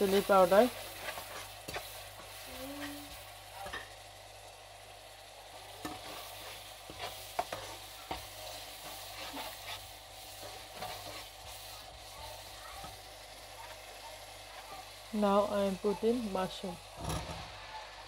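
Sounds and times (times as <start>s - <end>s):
food sizzling in a wok: 0.0s - 18.0s
metal spatula scraping pan: 5.8s - 11.3s.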